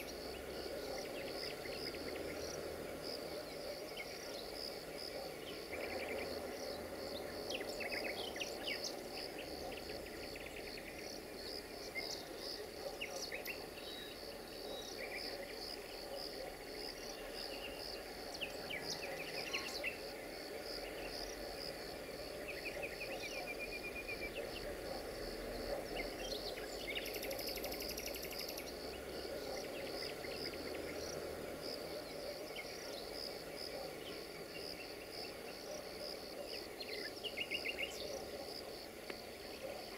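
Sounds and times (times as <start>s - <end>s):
crickets chirping: 0.0s - 39.9s
bird chirps: 26.0s - 28.8s.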